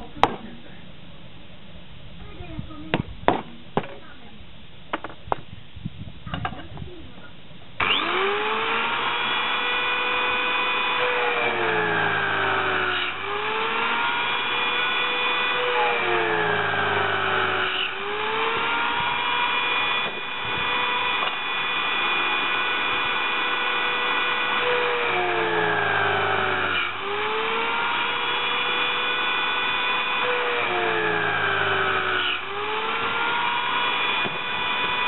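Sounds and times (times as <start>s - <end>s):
drill bit grinding metal: 7.8s - 35.0s
electric drill whining: 7.8s - 35.0s.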